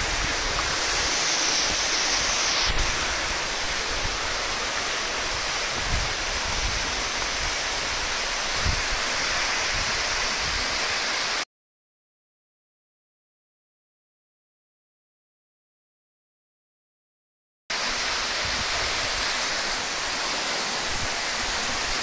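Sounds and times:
waterfall rushing: 0.0s - 11.4s, 17.7s - 22.0s.

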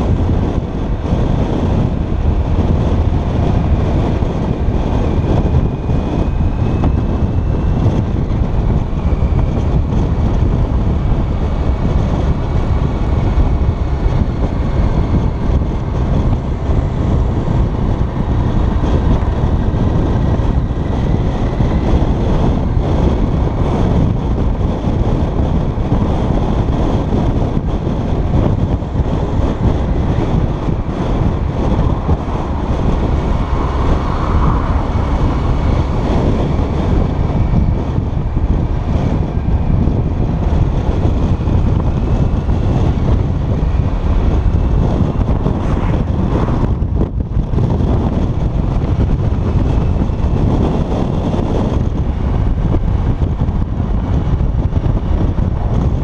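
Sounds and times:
motorcycle engine: 0.0s - 56.0s
wind buffeting microphone: 0.0s - 56.0s.

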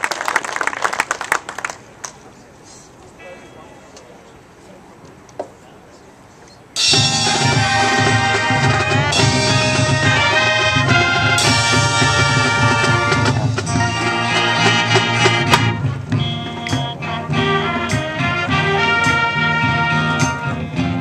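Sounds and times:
drums and percussion: 6.8s - 21.0s
marching band brass chords: 6.8s - 21.0s.

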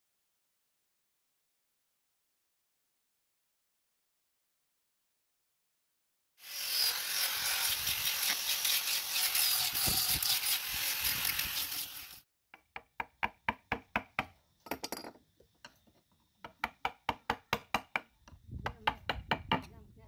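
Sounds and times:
angle grinder sanding wood: 6.4s - 12.2s
chisel knocking into wood: 16.4s - 19.7s.

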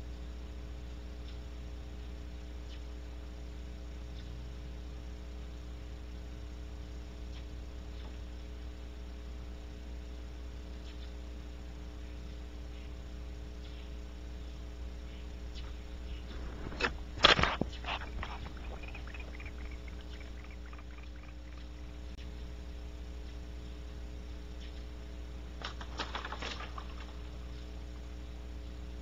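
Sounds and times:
electrical mains hum: 0.0s - 29.0s
sharp knocks and crackles: 15.4s - 22.2s, 25.5s - 27.9s
faint ticks: 15.5s - 22.4s.

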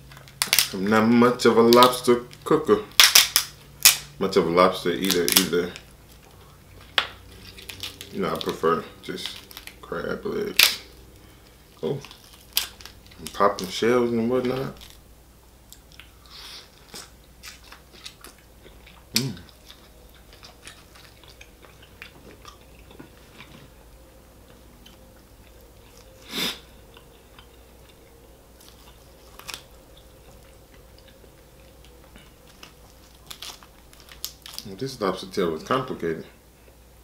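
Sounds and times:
shell cracking: 0.1s - 0.8s, 2.9s - 4.1s, 10.5s - 11.0s, 11.8s - 13.8s
person chewing: 5.0s - 13.7s, 15.7s - 34.7s.

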